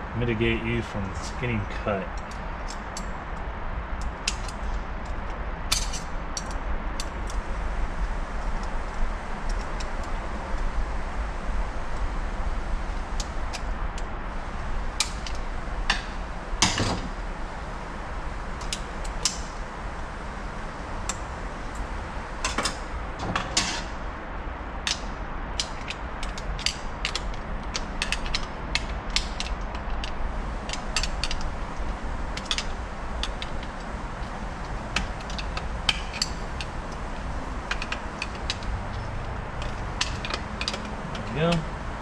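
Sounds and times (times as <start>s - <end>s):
steady low hum: 0.0s - 42.0s
screwdriver clicking and scraping metal: 25.6s - 41.6s.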